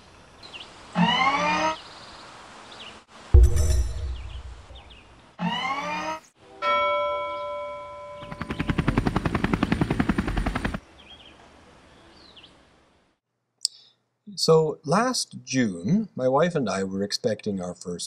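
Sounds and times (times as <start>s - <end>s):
bell-like chime: 6.6s - 8.2s
fast buzzing rattle: 8.2s - 10.8s.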